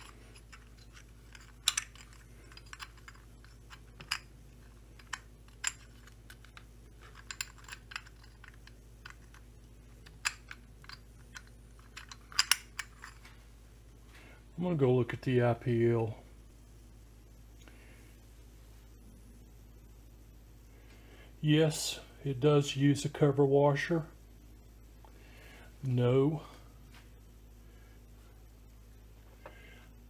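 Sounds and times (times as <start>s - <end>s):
metal and plastic parts clicking: 0.0s - 4.3s, 10.0s - 13.2s
faint steady hum: 0.0s - 30.0s.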